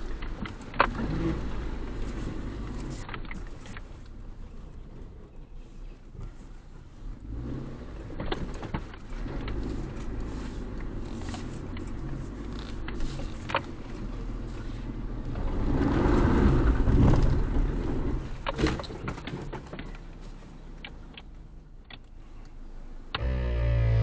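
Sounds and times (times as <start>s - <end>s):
sharp clicks and knocks: 0.0s - 1.2s, 2.8s - 4.2s, 8.1s - 14.2s, 20.8s - 22.2s
car engine at crawling speed: 0.0s - 24.0s.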